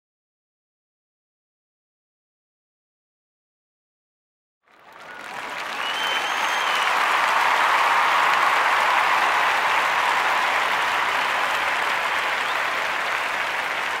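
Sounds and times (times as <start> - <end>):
crowd applauding: 4.7 - 14.0.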